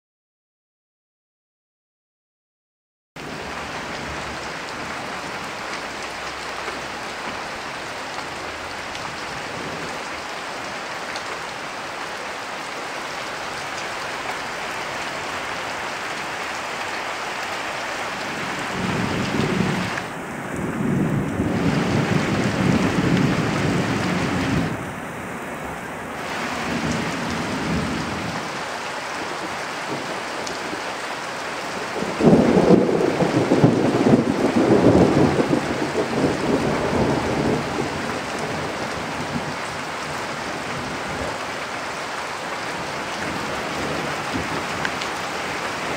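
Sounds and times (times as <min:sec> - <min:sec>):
heavy rain on road and roofs: 0:03.2 - 0:45.9
thunder rumbling: 0:18.2 - 0:25.0, 0:25.6 - 0:28.6, 0:31.8 - 0:41.4
loud thunder peal: 0:32.0 - 0:38.7.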